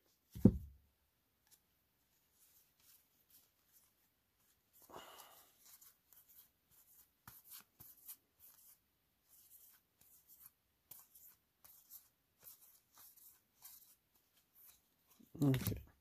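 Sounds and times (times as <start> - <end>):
cards and packaging rustling: 14.7 - 16.0.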